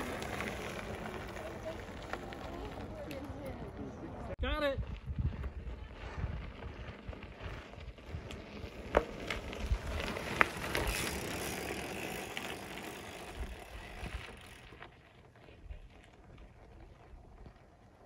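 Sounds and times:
bike tyres crunching on dirt: 0.0s - 4.2s, 4.8s - 18.0s.

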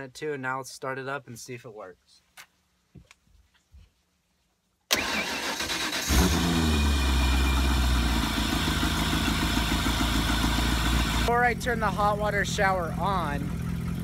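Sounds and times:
boat engine starting and idling: 4.9s - 14.0s.

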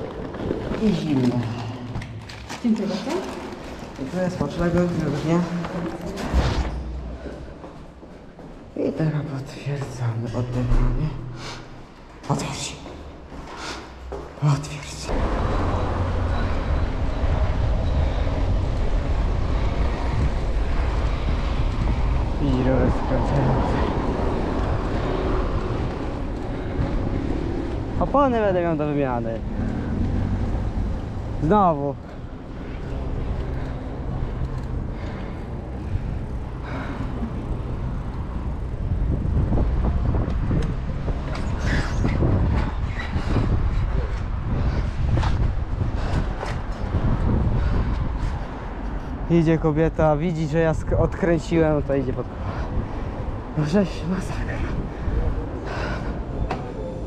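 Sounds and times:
bicycle tyres rumbling on pavement: 0.0s - 8.7s, 15.1s - 49.0s
road traffic: 0.0s - 57.0s
wind buffeting microphone: 15.1s - 31.4s, 32.1s - 57.0s.

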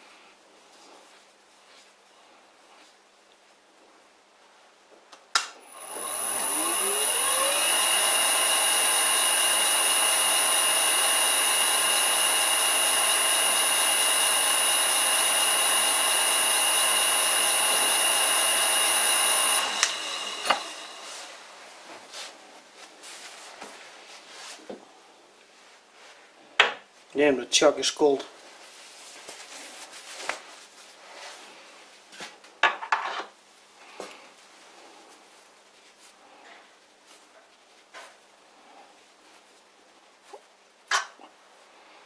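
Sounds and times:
lathe motor whining: 5.6s - 21.6s.

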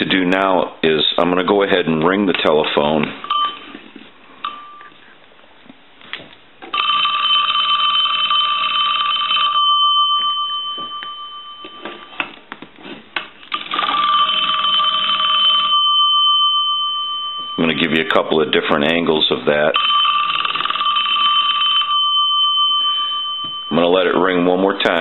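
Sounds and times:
telephone bell ringing: 3.2s - 3.8s, 4.4s - 4.9s, 6.7s - 12.2s, 13.7s - 18.2s, 19.8s - 25.0s.

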